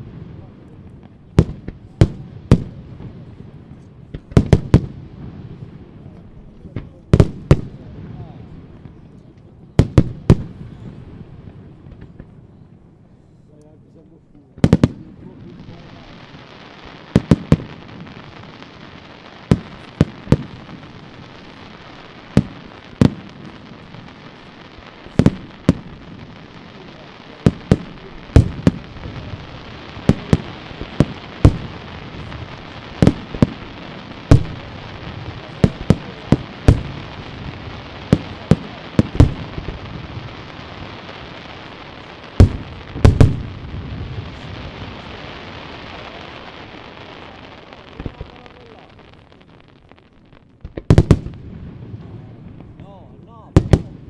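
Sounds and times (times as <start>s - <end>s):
steady hiss: 0.0s - 54.0s
firework shells bursting: 16.9s - 52.8s.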